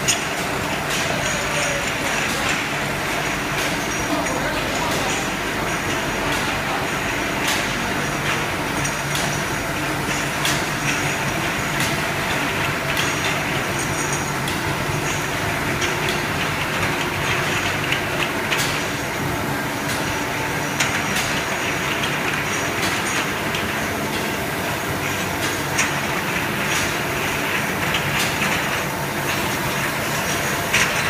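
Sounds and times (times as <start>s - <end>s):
bottle washing machine running: 0.0s - 31.0s.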